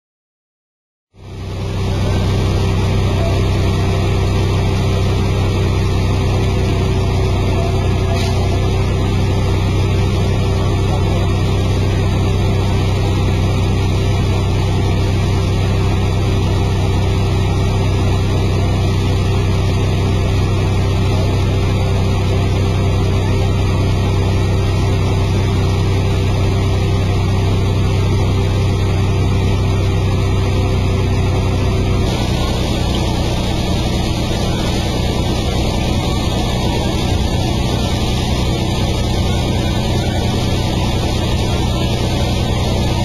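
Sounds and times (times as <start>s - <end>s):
low machine drone: 1.2s - 43.0s
hiss of spraying water: 32.0s - 43.0s.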